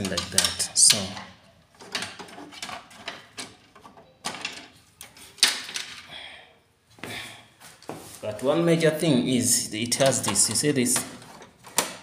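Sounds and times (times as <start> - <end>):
plastic parts clicking and knocking: 0.0 - 6.1, 9.8 - 12.0.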